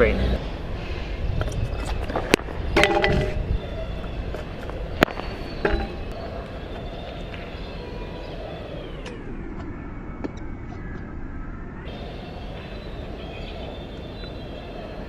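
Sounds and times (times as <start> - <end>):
scooter knocking on hard court: 2.8 - 3.4, 5.6 - 6.1.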